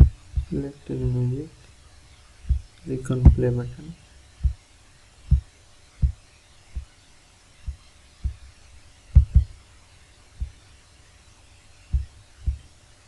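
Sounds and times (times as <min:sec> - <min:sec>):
soft low thumps: 0:00.0 - 0:01.4, 0:02.4 - 0:03.6, 0:04.4 - 0:04.6, 0:05.3 - 0:06.2, 0:07.7 - 0:08.5, 0:09.1 - 0:09.6, 0:10.4 - 0:10.6, 0:11.9 - 0:12.7
faint background hiss: 0:00.0 - 0:13.0.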